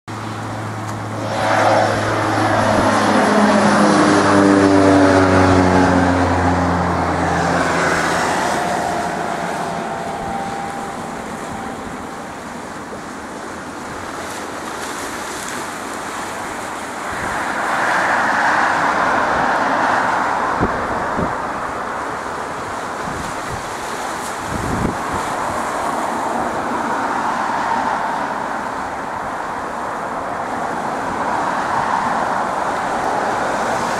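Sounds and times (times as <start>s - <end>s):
jet engines whining: 0.1s - 14.6s
rushing jet noise: 0.1s - 33.9s.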